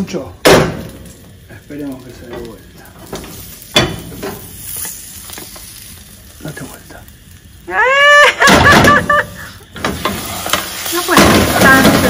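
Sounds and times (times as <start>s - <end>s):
food sizzling in pan: 0.0s - 12.0s
person whooping: 7.6s - 9.6s.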